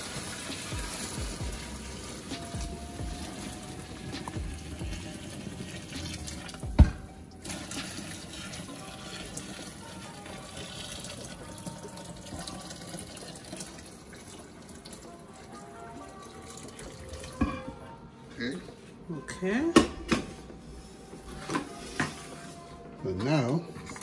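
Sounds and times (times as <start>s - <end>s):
water pouring into sink: 0.0s - 2.3s, 3.2s - 17.5s.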